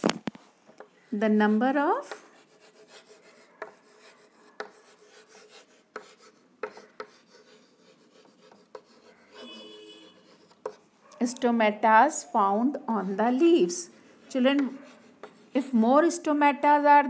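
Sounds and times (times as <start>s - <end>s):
chalk scratching on chalkboard: 1.1s - 10.9s, 12.9s - 15.8s
chalk tapping on board: 1.5s - 10.9s, 13.4s - 15.7s.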